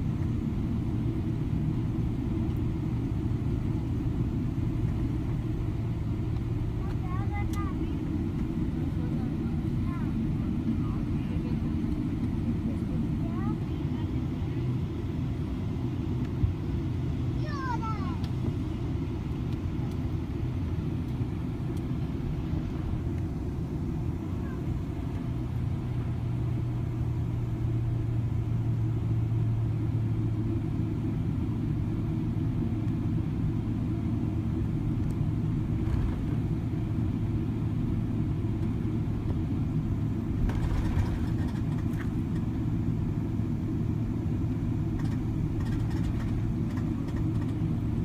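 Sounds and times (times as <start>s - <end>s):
jet engine drone in cabin: 0.0s - 48.0s
faint clicks or rattles: 45.0s - 47.6s.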